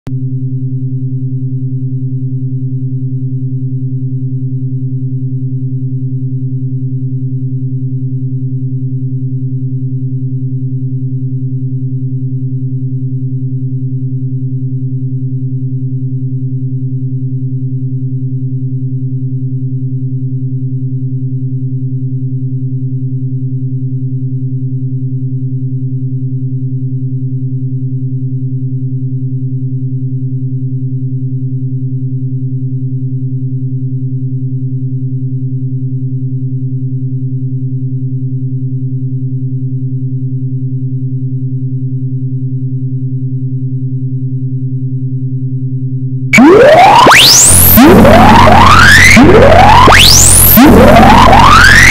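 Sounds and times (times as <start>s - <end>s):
deep synthesized drone: 46.4s - 51.9s.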